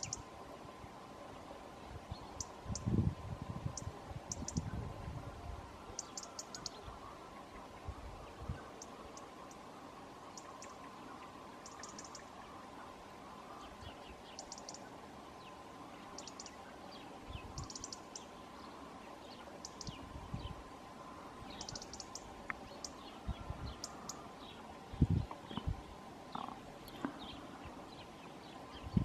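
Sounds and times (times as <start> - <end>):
songbirds chirping and twittering: 0.0 - 29.0.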